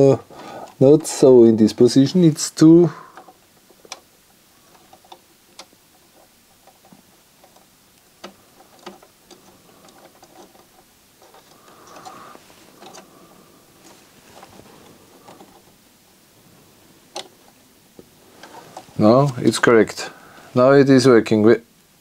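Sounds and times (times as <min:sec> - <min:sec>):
small plastic parts clicking: 0:03.0 - 0:13.2, 0:13.8 - 0:15.7, 0:17.1 - 0:17.6
soft rubbing: 0:08.3 - 0:20.6.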